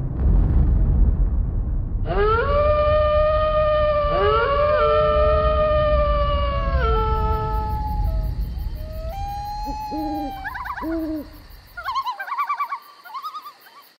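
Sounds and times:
low rumble: 0:00.0 - 0:11.8
animal howling: 0:02.1 - 0:13.8
owl hooting: 0:06.9 - 0:13.9
rapid warbling calls: 0:09.1 - 0:13.9.

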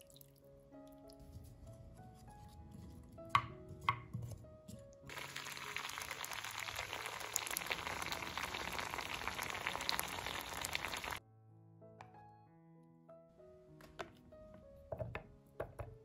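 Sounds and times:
soft piano music: 0:00.0 - 0:16.0
carrots simmering in a frying pan: 0:05.1 - 0:11.2.

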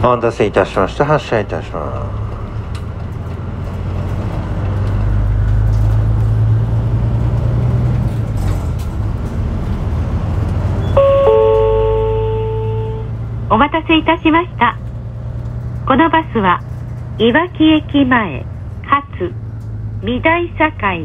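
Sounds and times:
bus engine droning: 0:00.0 - 0:21.0
two-note electronic chime: 0:10.8 - 0:13.1.

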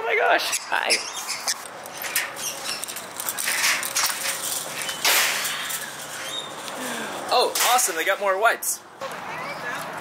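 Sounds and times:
metal gate rattling and clinking: 0:01.2 - 0:06.7
metal gate clank: 0:02.0 - 0:06.5.

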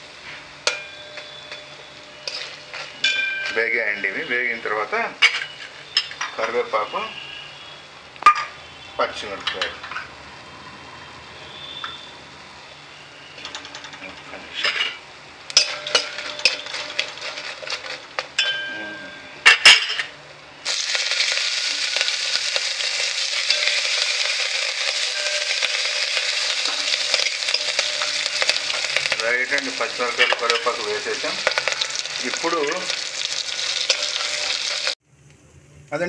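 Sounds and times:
loud sizzling in hot oil: 0:00.0 - 0:18.7, 0:19.4 - 0:36.0
spoon clinking against metal pot: 0:00.6 - 0:03.8, 0:13.4 - 0:20.1, 0:23.1 - 0:33.0, 0:33.7 - 0:34.9
sharp metal clank: 0:14.6 - 0:20.2.

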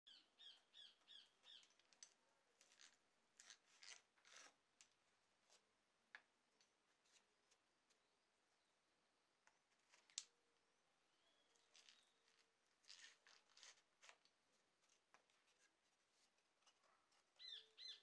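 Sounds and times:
hand drill scraping wood: 0:01.4 - 0:04.6, 0:11.6 - 0:14.3.

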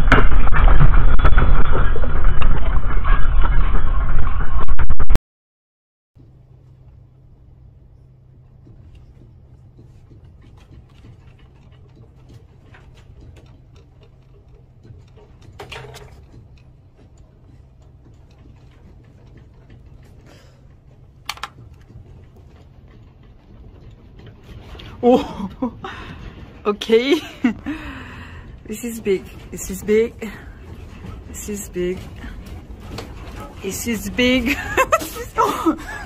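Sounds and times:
low electrical hum: 0:06.2 - 0:36.0.

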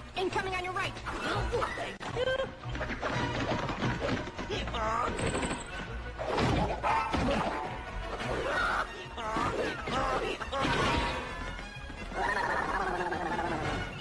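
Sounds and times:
background music: 0:00.0 - 0:14.0
rubber balls whacking: 0:02.6 - 0:08.3.

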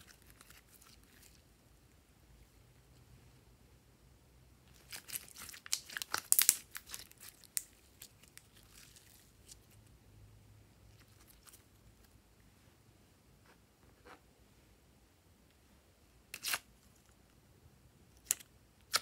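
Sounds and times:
slime crackling and popping: 0:04.8 - 0:09.2.

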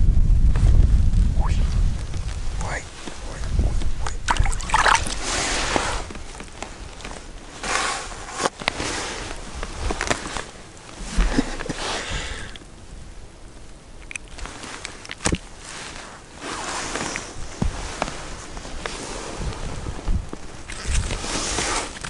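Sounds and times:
crunching snow: 0:01.7 - 0:12.5, 0:14.3 - 0:22.0
rustling winter clothing: 0:04.3 - 0:13.6, 0:14.3 - 0:22.0.

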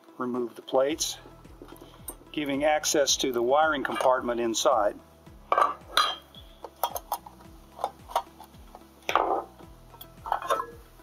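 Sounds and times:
metal plate and screws clinking: 0:09.1 - 0:10.8.

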